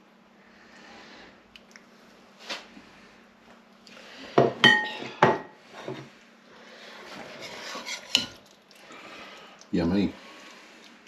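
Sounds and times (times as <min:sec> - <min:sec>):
plates and utensil clinking: 0:04.4 - 0:06.1
utensil scraping pan: 0:06.9 - 0:08.4.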